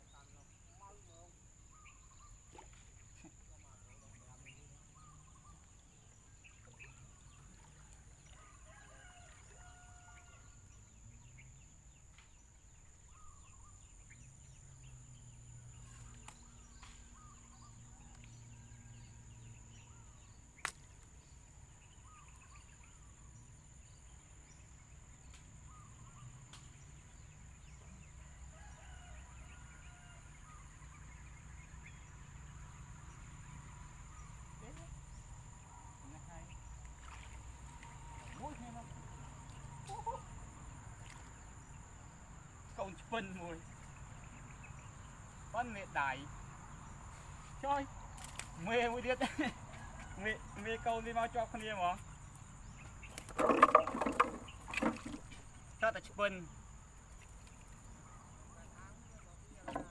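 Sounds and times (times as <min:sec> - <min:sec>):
birds calling: 0:00.0 - 0:10.4, 0:11.0 - 0:59.9
distant roosters crowing: 0:07.7 - 0:10.7, 0:28.2 - 0:30.9, 0:48.6 - 0:51.6.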